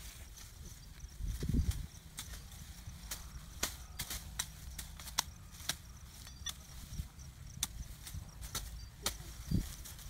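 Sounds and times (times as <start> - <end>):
twigs snapping and crackling: 1.6 - 6.7, 7.6 - 10.0.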